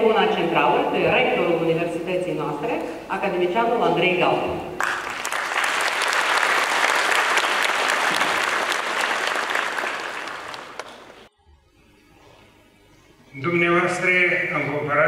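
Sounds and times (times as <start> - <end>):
large audience applauding: 4.8 - 11.3.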